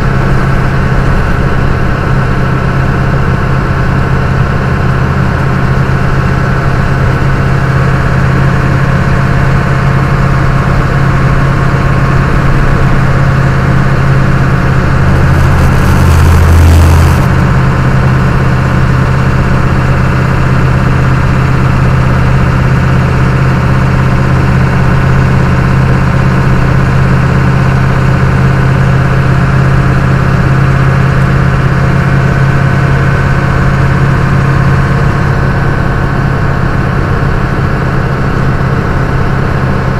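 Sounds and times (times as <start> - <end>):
truck engine and road drone: 0.0 - 39.9
loud rushing noise: 13.6 - 18.8.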